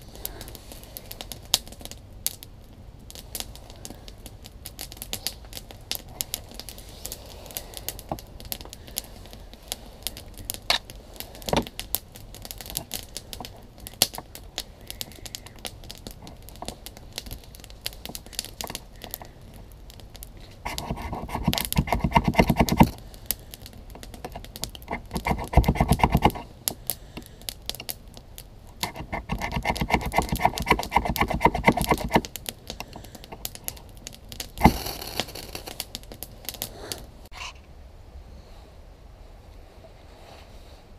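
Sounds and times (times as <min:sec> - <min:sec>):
light scrapes and clicks: 0:20.3 - 0:23.0, 0:24.0 - 0:26.5, 0:28.8 - 0:33.8
knife scraping ferrocerium rod: 0:20.7 - 0:23.0, 0:24.3 - 0:26.5, 0:28.8 - 0:32.3.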